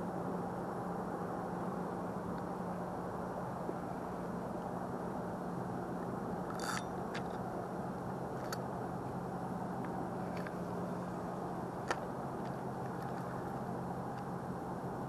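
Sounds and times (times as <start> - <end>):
low background noise: 0.0 - 15.0
rustling of fishing rod handling: 6.5 - 7.4.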